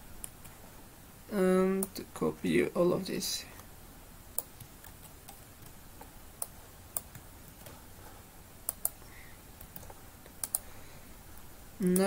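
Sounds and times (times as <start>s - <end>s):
keyboard and mouse clicks: 4.3s - 7.8s, 8.6s - 9.0s, 9.6s - 10.7s.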